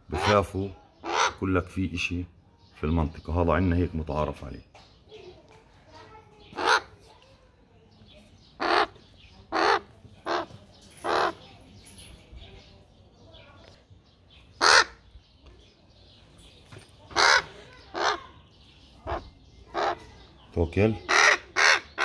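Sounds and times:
crow cawing: 1.0 - 1.4, 6.6 - 6.9, 8.6 - 10.5, 14.6 - 15.0, 17.1 - 18.3, 19.1 - 20.0, 21.1 - 22.0.

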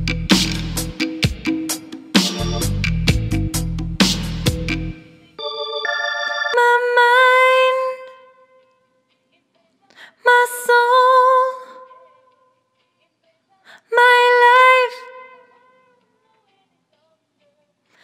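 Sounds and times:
woman singing unaccompanied: 6.6 - 18.0.

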